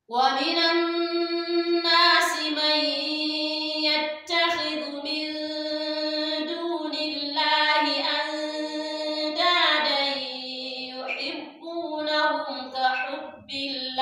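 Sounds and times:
woman chanting melodically: 0:00.0 - 0:14.0.

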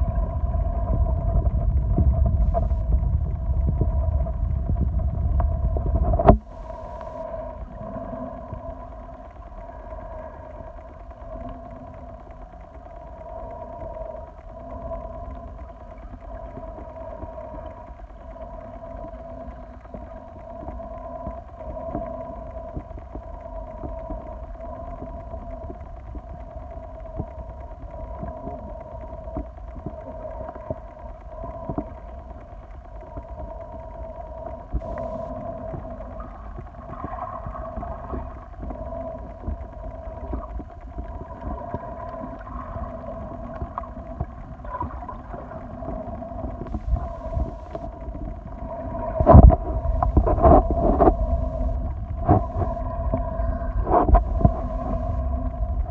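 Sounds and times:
faint low noise: 0:00.0 - 0:55.9
underwater hum: 0:00.0 - 0:55.9
small clicks and pops: 0:01.5 - 0:55.9
two steady tones: 0:34.8 - 0:36.2.

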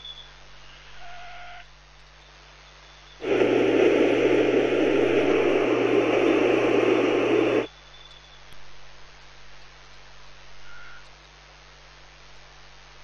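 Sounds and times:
harsh static noise: 0:03.2 - 0:07.7
steady low hum: 0:03.2 - 0:07.7.

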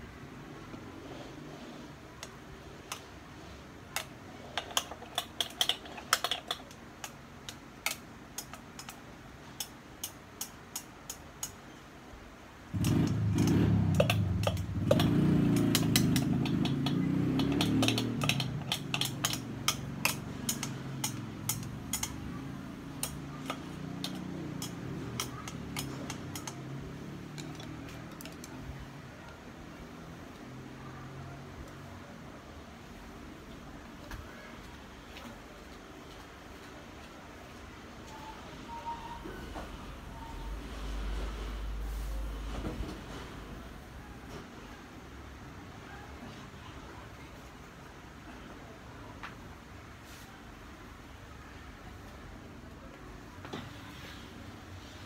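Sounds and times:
chopsticks tapping on a bowl: 0:13.9 - 0:22.3.

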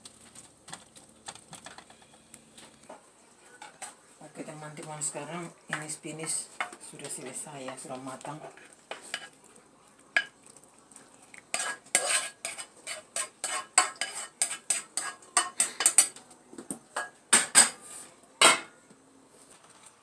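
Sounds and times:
spoon scraping a frying pan: 0:02.9 - 0:09.4, 0:10.1 - 0:10.4, 0:11.4 - 0:16.2, 0:17.0 - 0:18.7.

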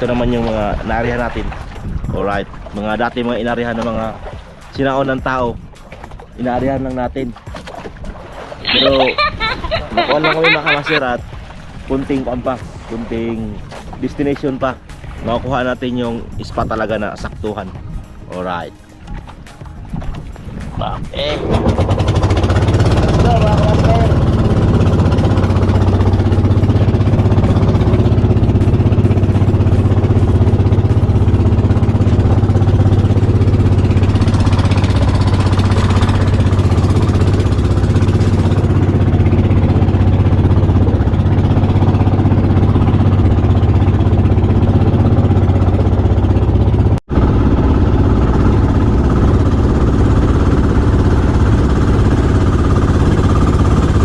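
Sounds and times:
boat engine droning: 0:00.0 - 0:54.0.

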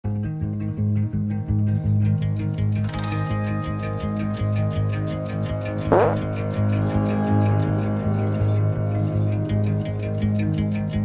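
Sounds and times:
background music with steady beat: 0:00.1 - 0:11.0.

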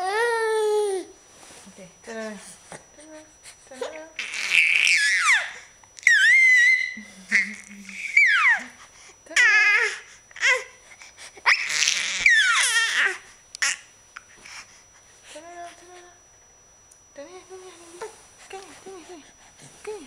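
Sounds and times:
baby squealing: 0:04.2 - 0:07.0, 0:08.0 - 0:08.7, 0:11.4 - 0:13.8.

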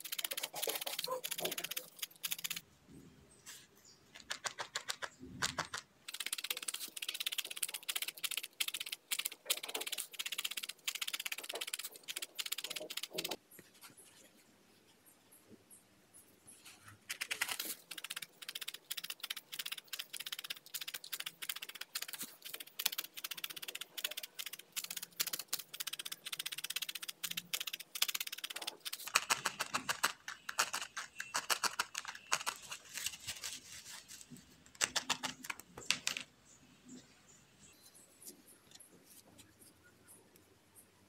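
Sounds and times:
felting needle ticking: 0:00.0 - 0:02.6, 0:04.2 - 0:13.4, 0:17.1 - 0:32.7.

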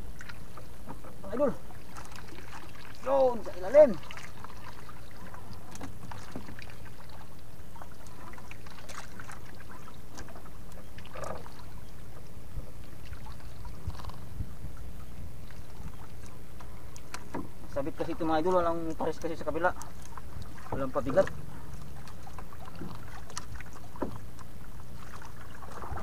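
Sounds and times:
water sounds around boat: 0:00.0 - 0:26.0
low rumble: 0:20.3 - 0:23.7.

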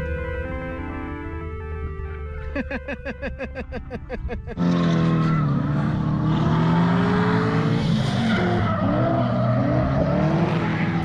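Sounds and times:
car engine at high revs: 0:04.4 - 0:11.0.

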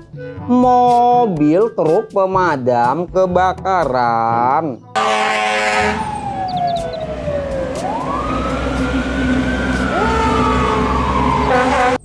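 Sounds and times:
fire truck siren wailing: 0:05.0 - 0:12.0
siren blare: 0:05.0 - 0:12.0
engine rumble: 0:05.8 - 0:12.0.

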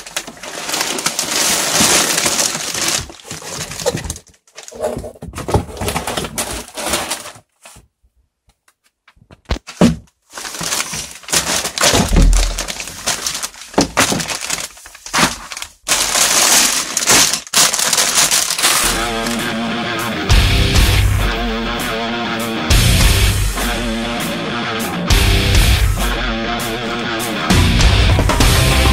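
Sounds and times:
plastic bags crinkling: 0:00.0 - 0:07.8, 0:10.2 - 0:19.6
music: 0:18.8 - 0:28.9.

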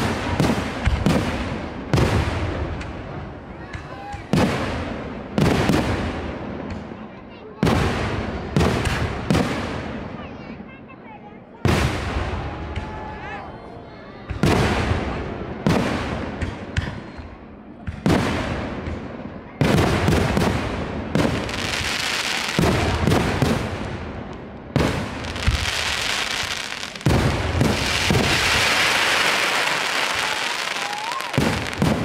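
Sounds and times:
dense firework crackling: 0:00.0 - 0:03.6, 0:19.6 - 0:32.0
firework shells booming: 0:17.9 - 0:32.0.

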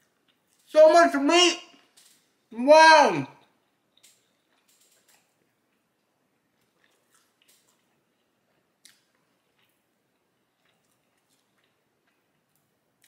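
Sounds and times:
faint wet chewing clicks: 0:00.0 - 0:00.7, 0:01.8 - 0:02.5, 0:03.4 - 0:13.0.

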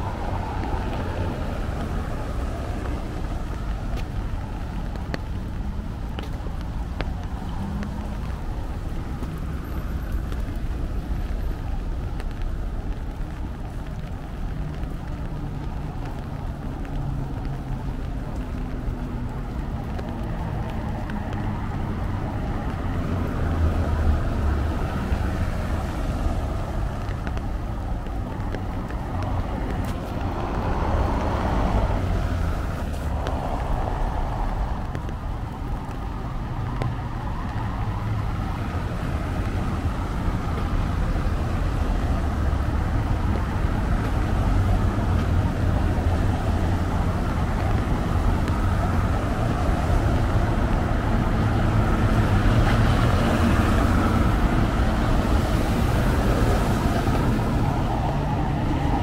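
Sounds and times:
road traffic rumble: 0:00.0 - 0:59.0
vehicle passing: 0:28.0 - 0:59.0.

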